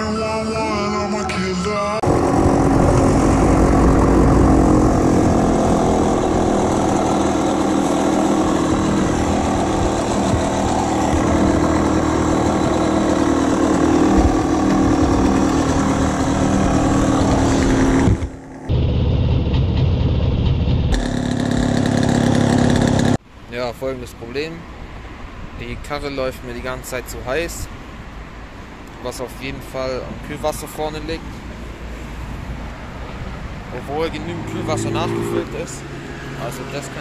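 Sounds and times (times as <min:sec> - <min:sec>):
two-stroke engine running: 0:02.0 - 0:23.2.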